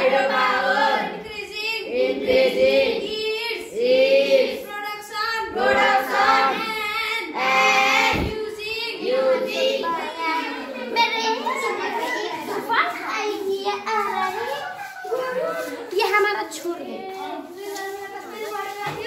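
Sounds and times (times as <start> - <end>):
children singing: 0.0 - 12.6.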